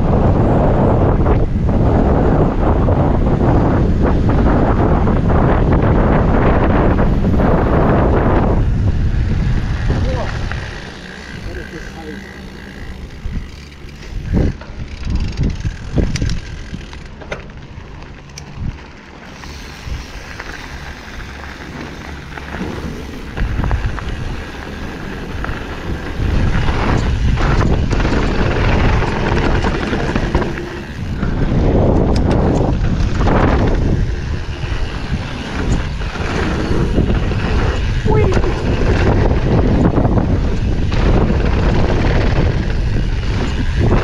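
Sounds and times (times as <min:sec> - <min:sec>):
wind rushing on microphone: 0:00.0 - 0:44.0
bike clicks and knocks: 0:09.6 - 0:44.0
tyre rumble: 0:18.8 - 0:44.0.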